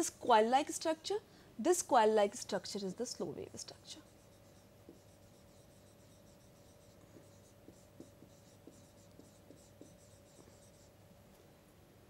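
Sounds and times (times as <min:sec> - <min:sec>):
faint steady hum: 0:00.0 - 0:12.0
stylus scratching on a tablet: 0:03.2 - 0:11.0.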